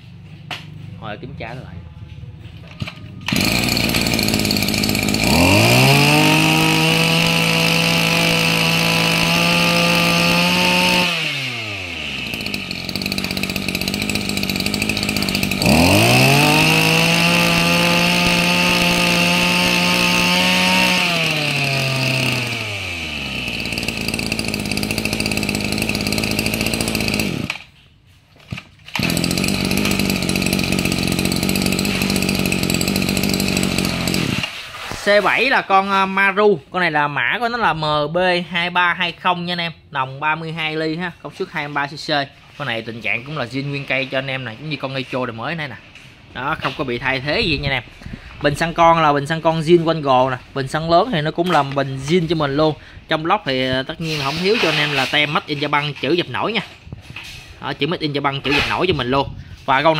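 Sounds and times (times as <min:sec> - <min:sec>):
brush cutter engine revving: 0:02.4 - 0:27.8, 0:28.4 - 0:35.6, 0:42.0 - 0:59.9.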